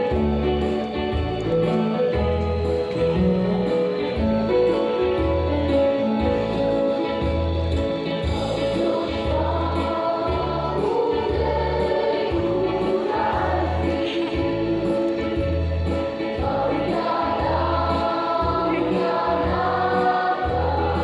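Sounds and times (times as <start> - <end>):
choir singing with band: 8.2 - 21.0.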